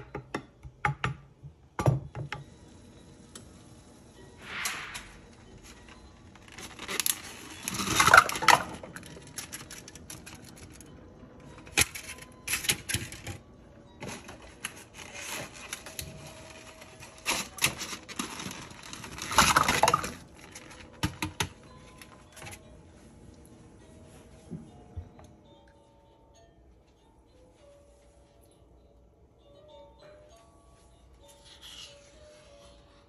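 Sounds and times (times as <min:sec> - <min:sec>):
plastic package crinkling: 0:06.4 - 0:10.9, 0:14.0 - 0:21.0.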